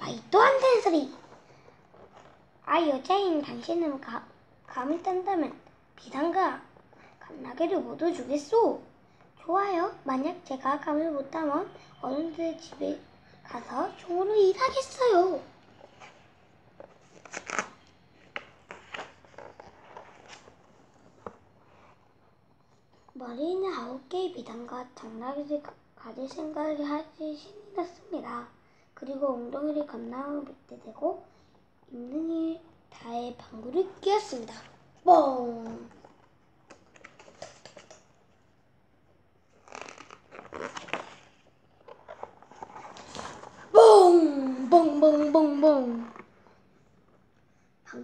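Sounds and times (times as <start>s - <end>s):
book pages turning: 1.0s - 2.4s, 15.7s - 22.0s, 35.6s - 38.5s, 39.4s - 43.7s.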